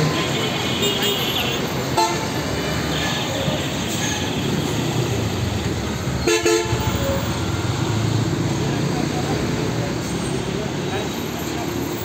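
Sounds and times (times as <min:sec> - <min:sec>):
traffic engines and road noise: 0:00.0 - 0:12.0
vehicle horn blast: 0:00.2 - 0:02.3, 0:06.2 - 0:06.9.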